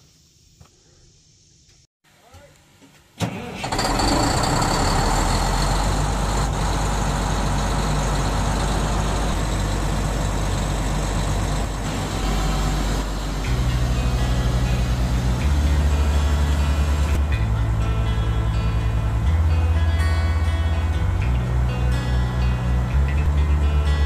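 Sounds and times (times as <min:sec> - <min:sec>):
air blowing out borehole: 0:03.6 - 0:17.2
drilling rig engine running: 0:03.6 - 0:24.0.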